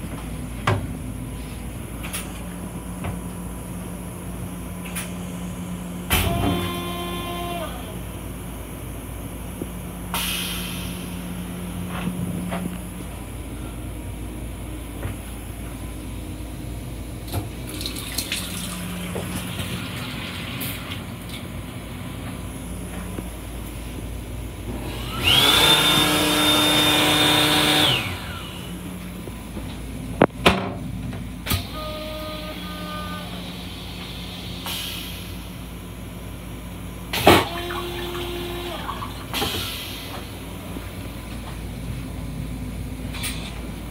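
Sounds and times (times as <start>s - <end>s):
low hum of railcar: 0.0s - 25.4s, 28.0s - 43.9s
toilet flushing with high whistle: 6.1s - 7.9s, 17.7s - 21.0s, 31.6s - 34.0s, 37.4s - 40.0s.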